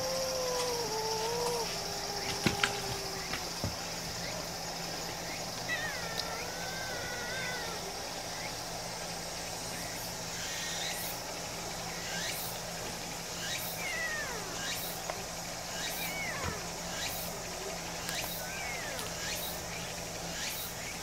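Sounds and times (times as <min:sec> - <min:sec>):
kitten meowing: 0:05.7 - 0:07.9, 0:15.9 - 0:16.7, 0:18.4 - 0:19.1.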